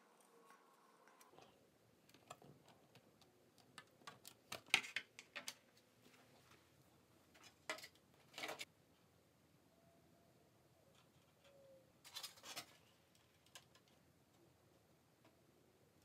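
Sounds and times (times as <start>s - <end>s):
plastic parts clicking and tapping: 1.0s - 5.7s, 11.0s - 14.1s.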